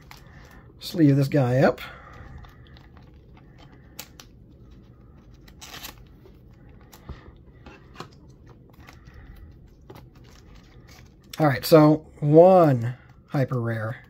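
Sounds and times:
plastic sleeve rustling: 2.1s - 11.6s.

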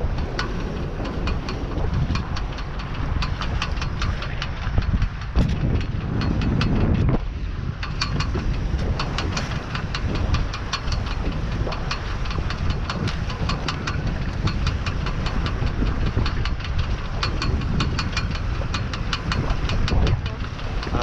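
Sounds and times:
rapid irregular ticking: 0.0s - 21.0s
wind rumbling on microphone: 0.0s - 21.0s.

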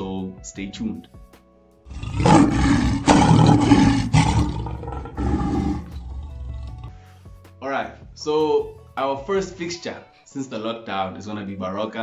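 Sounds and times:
lion roaring: 1.9s - 6.9s.

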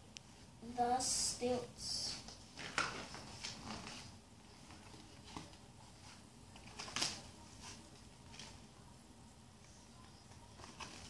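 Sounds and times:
book rustling: 2.1s - 8.8s, 9.6s - 11.0s.

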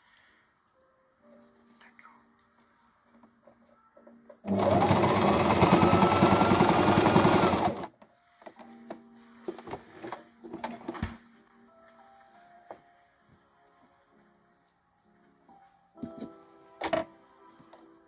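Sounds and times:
sewing machine stitching: 4.4s - 7.9s.

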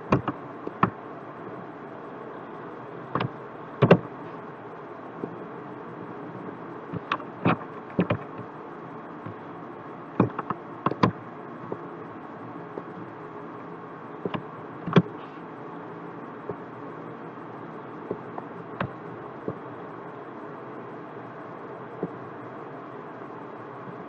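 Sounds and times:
computer mouse clicking: 0.1s - 1.0s, 3.1s - 4.0s, 6.9s - 8.5s, 10.2s - 11.2s.

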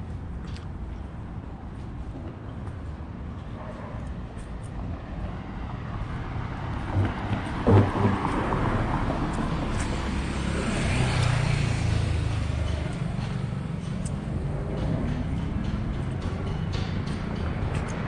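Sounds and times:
low rumble of city traffic: 0.0s - 18.0s
car passing: 4.8s - 18.0s.

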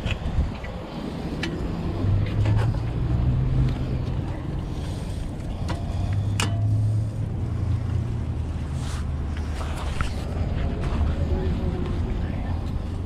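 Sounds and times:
wind on the microphone: 0.0s - 4.7s
low steady rumble: 0.0s - 13.0s.

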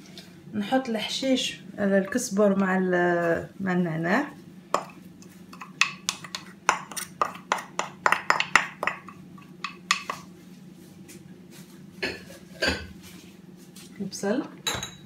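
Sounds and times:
steady low hum: 0.0s - 15.0s
wooden spoon tapping ceramic bowl: 4.8s - 10.2s.

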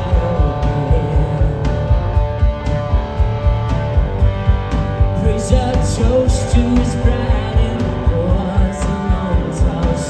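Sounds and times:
man singing: 0.0s - 2.2s, 5.2s - 10.0s
bass guitar: 0.0s - 10.0s
distorted electric guitar: 0.0s - 10.0s
drum kit beat: 0.0s - 10.0s.

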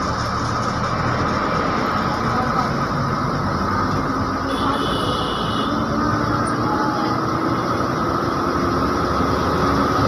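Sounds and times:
bus engine and road noise: 0.0s - 10.0s.

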